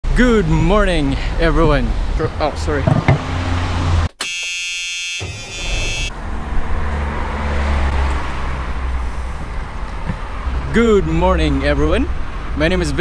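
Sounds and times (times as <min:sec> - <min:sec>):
city background rumble: 0:00.0 - 0:04.2, 0:05.6 - 0:13.0
buzzer sound effect: 0:04.2 - 0:06.1.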